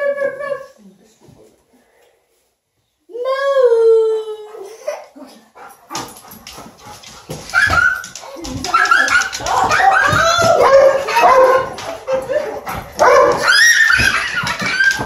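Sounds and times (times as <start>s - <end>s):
dog yipping: 7.5s - 15.0s.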